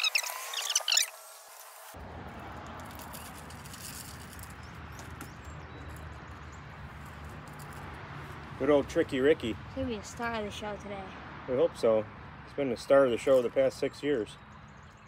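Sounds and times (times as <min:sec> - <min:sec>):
high squeaky chirps: 0:00.0 - 0:01.3.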